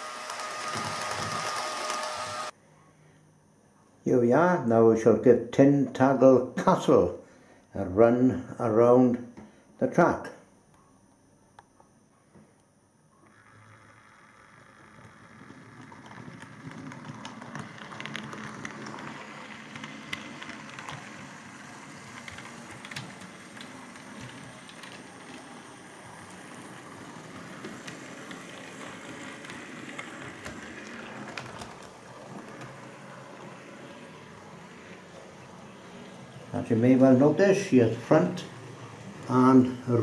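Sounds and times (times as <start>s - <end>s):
model train motor whirring: 0.0s - 2.5s, 13.2s - 40.0s.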